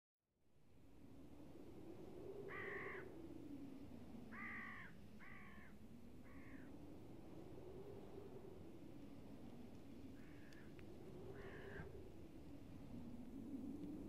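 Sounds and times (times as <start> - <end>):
faint low drone: 0.4 - 14.0
bird cawing: 2.5 - 3.1, 4.3 - 6.7, 10.2 - 12.0.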